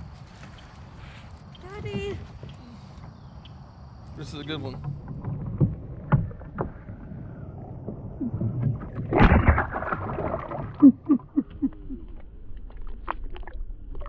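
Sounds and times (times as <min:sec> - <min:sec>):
fish splashing into water: 0:08.2 - 0:11.2.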